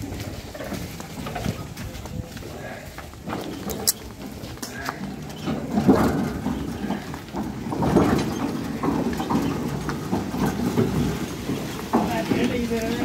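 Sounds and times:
concrete mixer engine chugging: 3.4 - 13.0.

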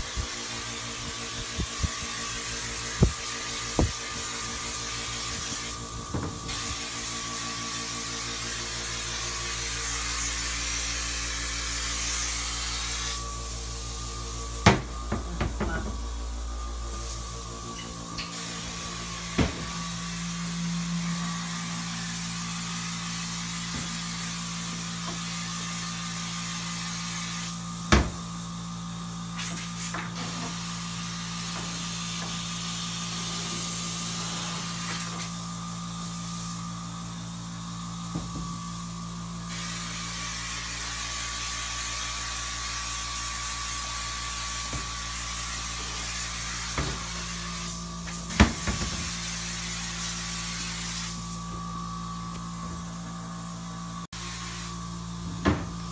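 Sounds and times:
spray hiss: 0.0 - 13.9, 16.9 - 28.4, 29.2 - 52.6, 53.4 - 55.0
fogger motor hum: 0.0 - 26.4.

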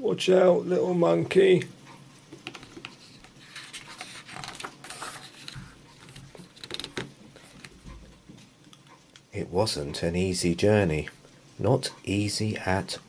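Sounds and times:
book page rustling: 2.5 - 7.9.

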